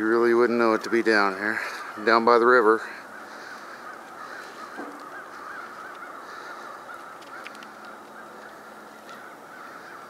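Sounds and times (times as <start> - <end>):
distant flock of birds calling: 0.0 - 10.0
faint ticks: 6.9 - 9.2.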